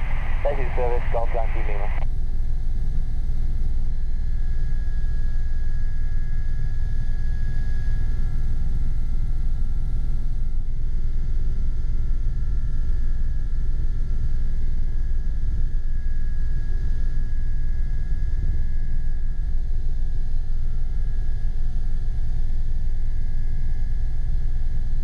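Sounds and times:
helicopter rotor rumble: 0.0s - 2.0s
high turbine whine: 0.0s - 2.0s.

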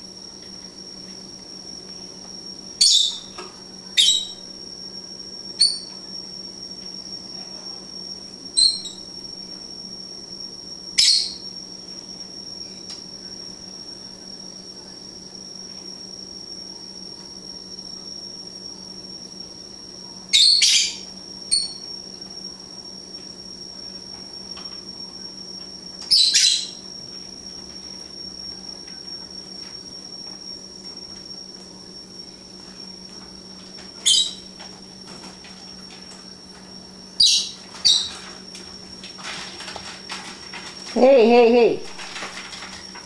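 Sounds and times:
faint high whine: 0.0s - 43.0s
lovebirds chirping: 2.8s - 4.4s, 26.1s - 26.9s, 34.0s - 34.6s.

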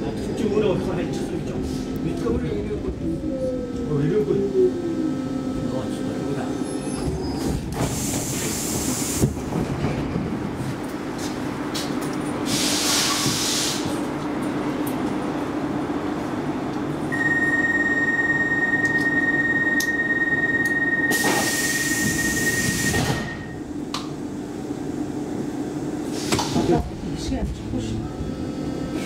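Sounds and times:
hiss of air: 12.4s - 14.0s
high door warning beep: 17.1s - 23.6s.

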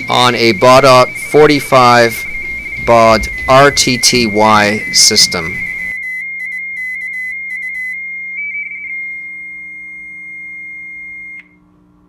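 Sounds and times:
warbling two-tone data signal: 0.0s - 11.4s
steady tone: 0.0s - 12.0s.

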